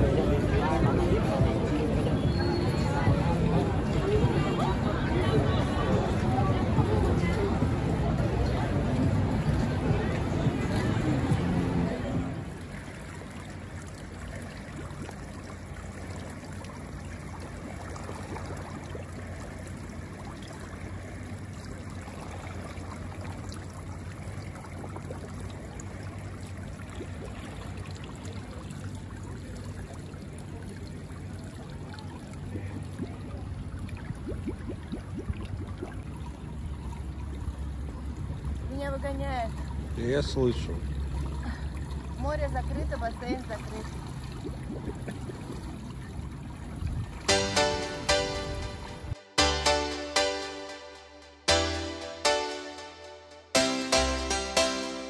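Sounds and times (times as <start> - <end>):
water rushing: 0.0 - 33.2.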